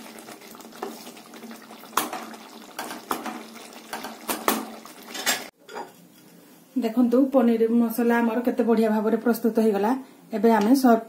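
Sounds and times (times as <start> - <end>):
spatula stirring thick gravy: 0.0 - 5.5.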